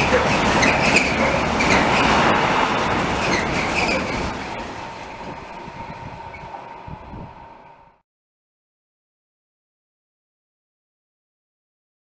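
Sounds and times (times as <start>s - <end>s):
wheel squeals: 0.0s - 6.9s
freight train rumbling past: 0.0s - 8.0s.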